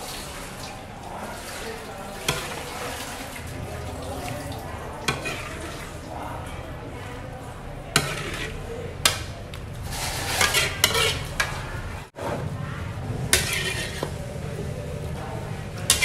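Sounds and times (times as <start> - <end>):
broth bubbling: 0.0 - 7.4
metal utensil clinking on pot: 10.3 - 11.7, 13.3 - 14.2.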